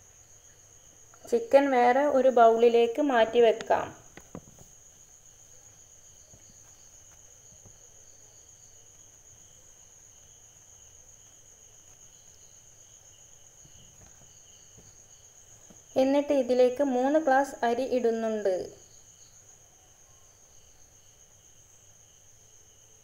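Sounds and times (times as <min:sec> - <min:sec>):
faint crickets chirping: 0:00.0 - 0:23.0.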